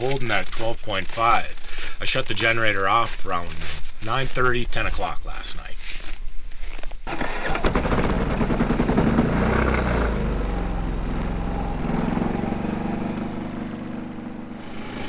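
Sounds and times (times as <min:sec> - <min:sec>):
engine starting and idling: 0:07.1 - 0:12.5.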